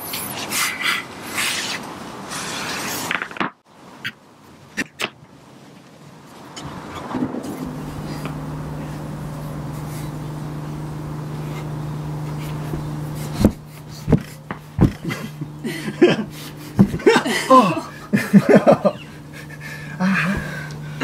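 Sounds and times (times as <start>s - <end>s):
low mechanical hum: 6.6s - 21.0s
breathy laughter: 14.9s - 21.0s.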